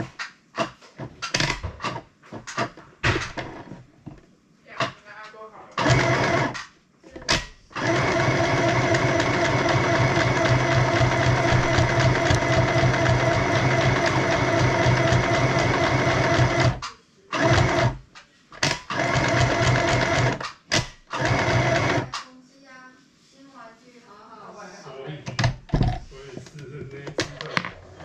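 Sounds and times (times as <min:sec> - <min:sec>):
sewing machine stitching: 0:05.8 - 0:06.7, 0:07.4 - 0:18.0, 0:18.6 - 0:22.2.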